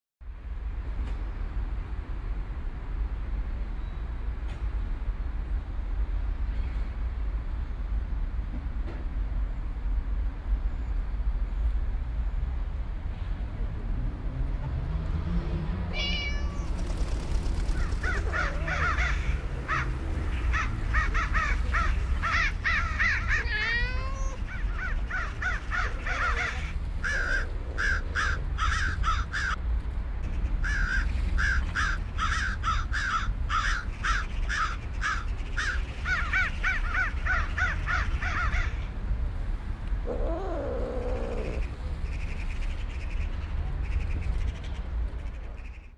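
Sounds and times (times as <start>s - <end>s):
low park background rumble: 0.2s - 45.9s
cat meowing: 15.9s - 16.7s, 23.1s - 24.6s, 40.0s - 41.8s
crows cawing: 17.8s - 29.6s, 30.6s - 38.9s, 40.1s - 42.4s.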